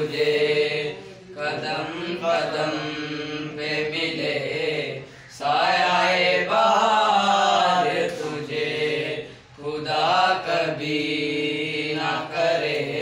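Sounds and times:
boys singing in unison: 0.0s - 13.0s.

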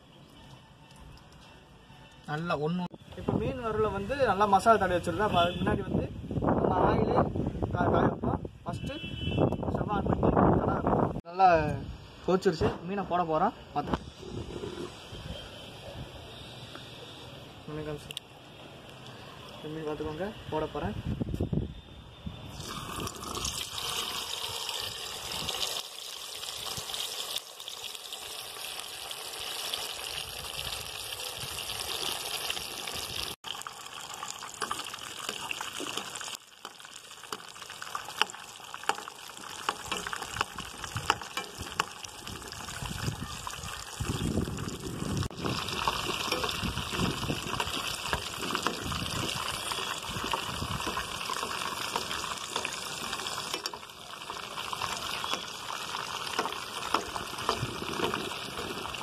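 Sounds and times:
fish sizzling in hot oil: 22.5s - 59.0s.

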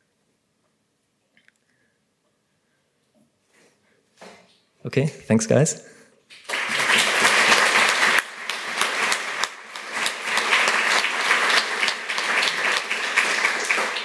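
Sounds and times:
audience applauding: 6.3s - 14.0s.

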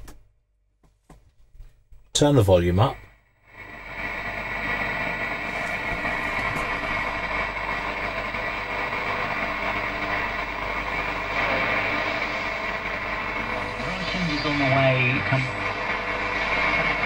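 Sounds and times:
low mains hum: 1.1s - 17.0s
radio static hiss: 3.6s - 17.0s.

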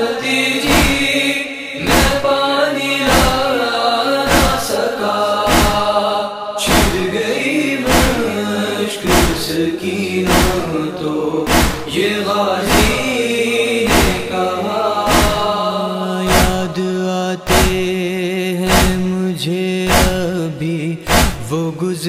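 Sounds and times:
mourning lament chanted: 0.0s - 22.0s
heavy beat: 0.7s - 1.0s, 1.9s - 2.2s, 3.1s - 3.4s, 4.3s - 4.7s, 5.5s - 5.9s, 6.7s - 7.1s, 7.9s - 8.2s, 9.1s - 9.5s, 10.3s - 10.7s, 11.5s - 11.9s, 12.7s - 13.0s, 13.9s - 14.3s, 15.1s - 15.5s, 16.3s - 16.7s, 17.5s - 17.9s, 18.7s - 19.1s, 19.9s - 20.3s, 21.1s - 21.5s.

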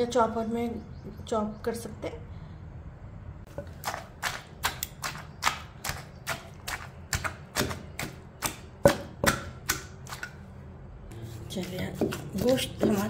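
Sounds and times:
pestle pounding meat in mortar: 3.5s - 10.4s, 11.2s - 13.0s.

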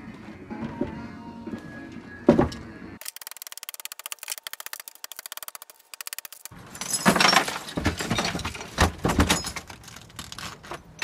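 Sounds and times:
broken glass clattering in bin: 6.6s - 11.0s.

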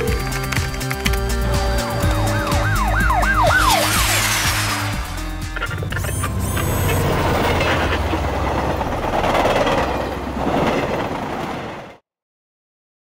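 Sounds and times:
traffic rumble: 3.2s - 11.9s.

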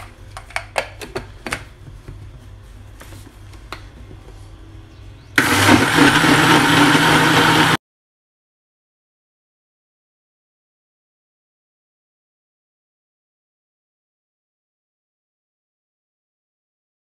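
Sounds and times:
blender running: 5.4s - 7.8s.

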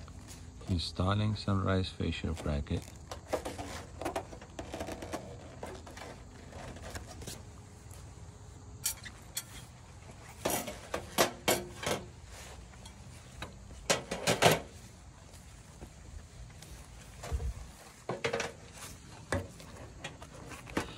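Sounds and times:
metal clinks and knocks: 8.8s - 9.8s.

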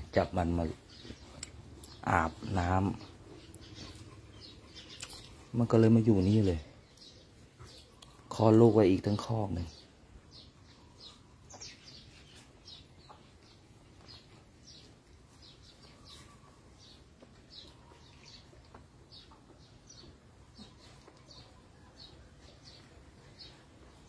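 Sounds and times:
faint bird chirping: 0.0s - 24.0s.

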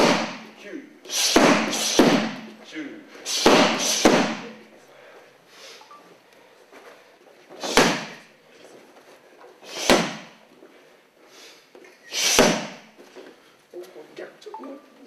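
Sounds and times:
strikes on padded strike pad: 0.0s - 0.5s, 1.3s - 2.4s, 3.4s - 4.4s, 7.6s - 8.2s, 9.8s - 10.3s, 12.4s - 12.8s.

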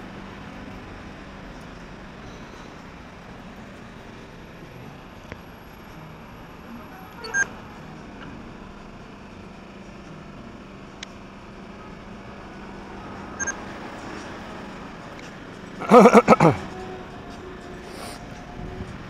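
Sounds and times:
traffic hum: 0.0s - 19.0s
short high-pitched beeps: 7.2s - 7.5s.

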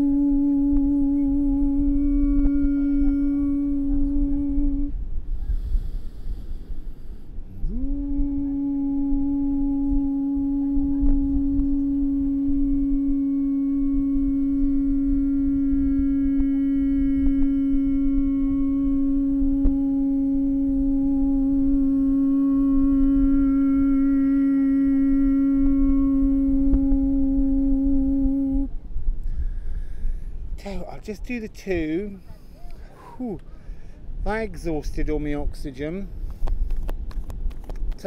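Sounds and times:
man toning a long note: 0.0s - 32.3s.

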